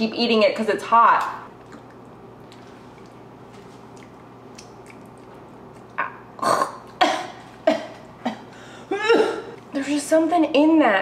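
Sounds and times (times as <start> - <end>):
woman chewing: 1.6 - 7.0.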